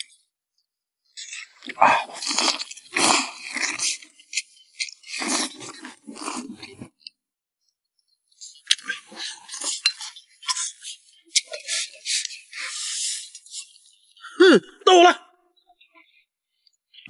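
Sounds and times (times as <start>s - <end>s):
man chewing noisily: 1.2s - 7.1s, 8.6s - 13.6s.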